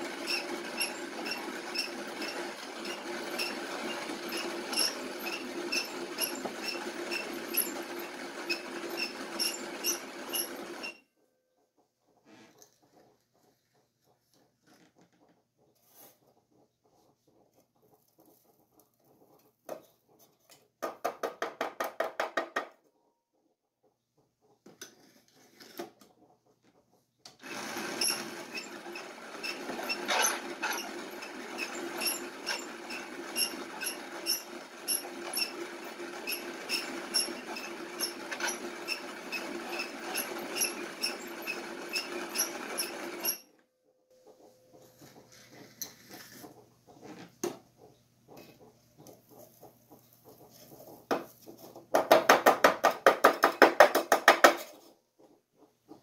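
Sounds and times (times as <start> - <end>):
hand coffee grinder grinding: 0.0 - 11.0, 27.4 - 43.5.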